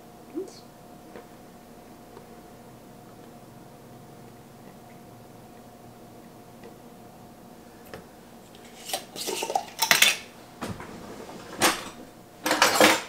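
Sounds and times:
utensils clinking against dishes: 8.6 - 10.3, 11.5 - 13.0.

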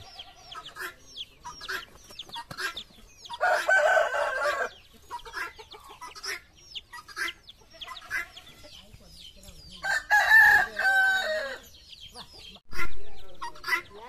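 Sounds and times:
guinea fowl calling: 0.0 - 8.9, 9.5 - 14.0
rooster crowing: 3.4 - 4.8, 9.8 - 11.7.

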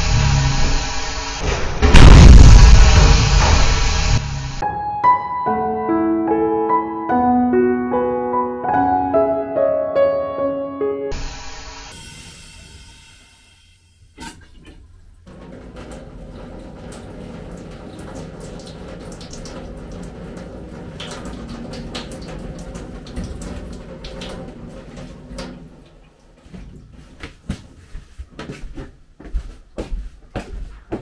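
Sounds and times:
running water: 14.0 - 27.2.

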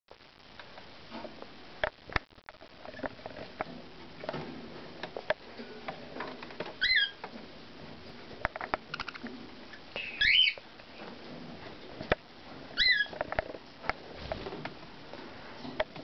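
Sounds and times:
budgerigar chirping: 10.0 - 10.6.

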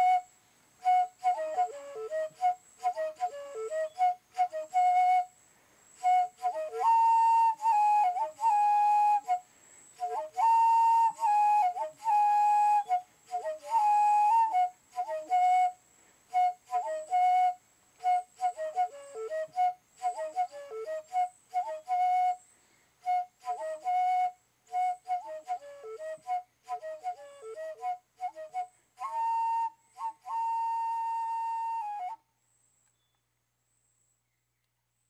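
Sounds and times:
solo flute melody: 0.0 - 5.4, 6.0 - 32.3.

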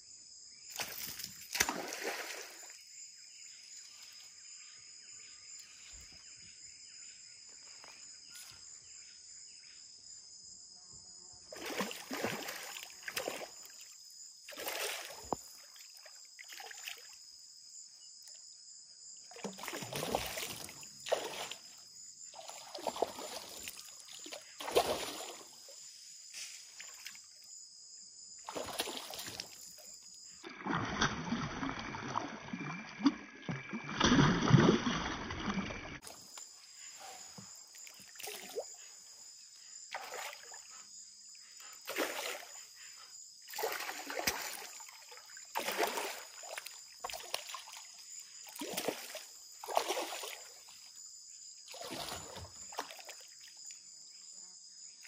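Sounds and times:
insects buzzing: 0.1 - 30.5, 35.9 - 55.0
water sloshing: 11.5 - 13.9, 14.5 - 17.2, 19.3 - 25.8, 28.5 - 36.4, 43.5 - 50.9, 51.7 - 53.7
paddle strokes splashing in water: 22.4 - 25.6, 43.5 - 50.8.

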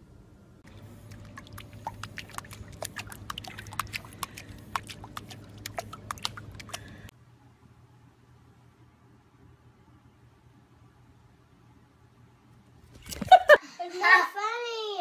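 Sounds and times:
low steady hum: 0.0 - 13.9
paws splashing water: 0.7 - 7.1.

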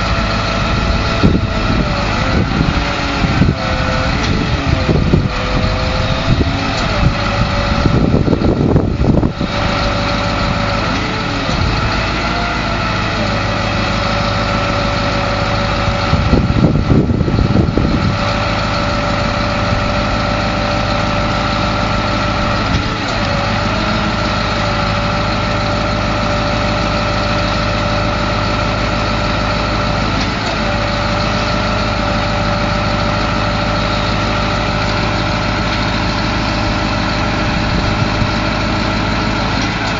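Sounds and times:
diesel engine running: 0.0 - 39.9
engine whine: 0.0 - 39.9.

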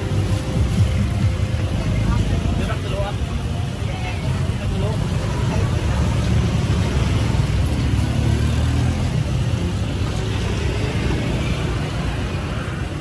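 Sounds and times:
road noise: 0.0 - 13.0
vehicle engine hum: 0.0 - 13.0.

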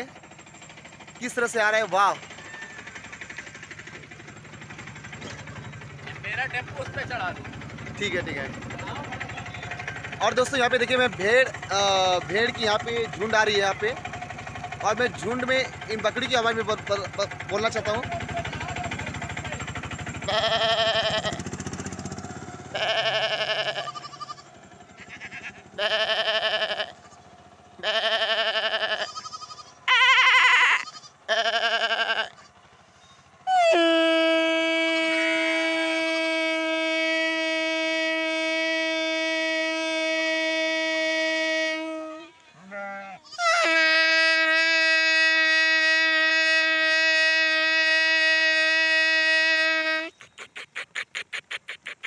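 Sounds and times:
man imitating bleats: 20.3 - 21.4, 22.7 - 24.4, 25.0 - 27.2, 27.8 - 32.5, 40.3 - 50.1
long horn-like tone: 33.4 - 42.8, 43.4 - 50.1.

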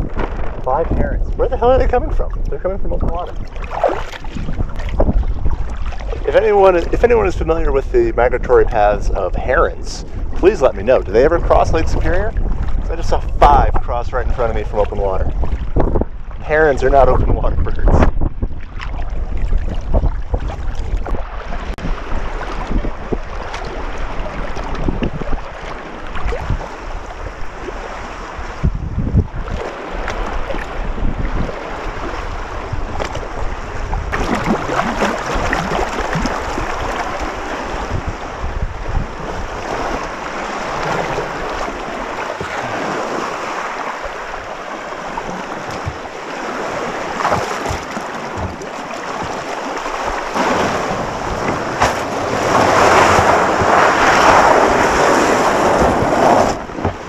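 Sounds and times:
wind buffeting microphone: 0.0 - 57.0
small waves lapping on beach: 1.6 - 7.7, 18.2 - 57.0.

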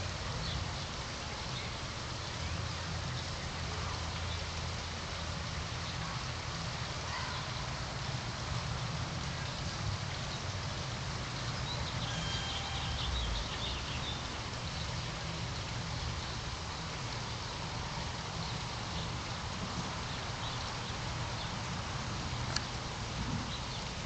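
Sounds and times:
bird chirping: 11.6 - 15.0.

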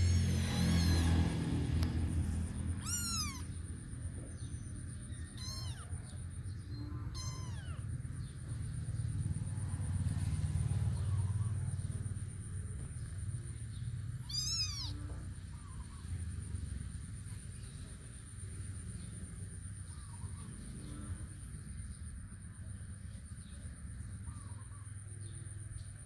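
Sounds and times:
kitten mewing: 0.0 - 3.8, 5.2 - 6.3, 7.0 - 8.0, 14.2 - 15.2
steady low rumble: 0.0 - 19.3.

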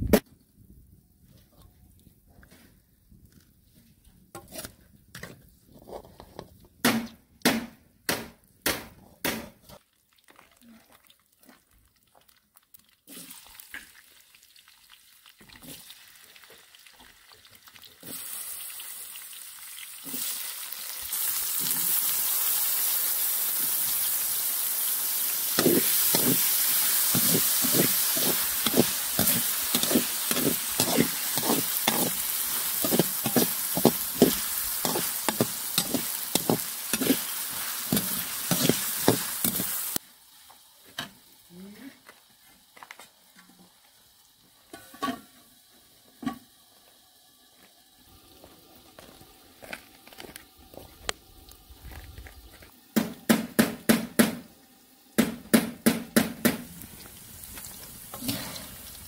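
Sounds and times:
metal spoon scraping wok: 4.4 - 6.4, 25.5 - 40.0
potatoes sizzling in hot oil: 9.8 - 53.0, 54.6 - 59.0.

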